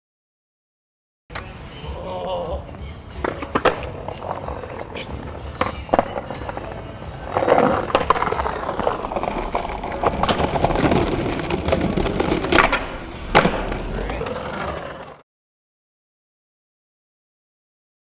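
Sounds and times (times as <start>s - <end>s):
skateboard wheels rolling on bricks: 2.8s - 15.2s
skateboard clacks: 3.2s - 15.1s.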